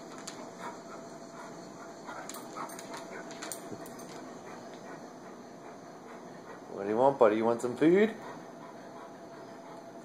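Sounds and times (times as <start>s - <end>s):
dog claws clicking on wooden floor: 2.1s - 4.8s.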